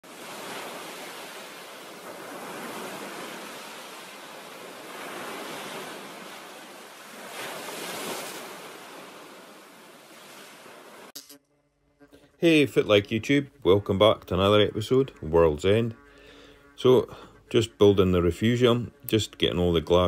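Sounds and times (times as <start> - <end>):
ocean waves washing in: 0.0 - 11.1.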